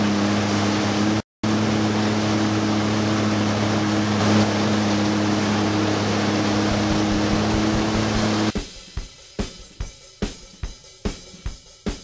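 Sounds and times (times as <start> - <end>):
jet ski engine running: 0.0 - 8.6
water rushing and spraying: 0.0 - 8.6.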